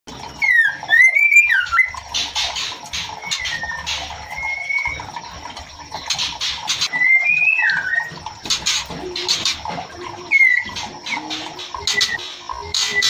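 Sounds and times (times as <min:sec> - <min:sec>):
bird whistling notes: 0:03.2 - 0:05.0, 0:06.9 - 0:08.2, 0:10.3 - 0:13.0
bird harsh rasping calls: 0:06.0 - 0:13.0.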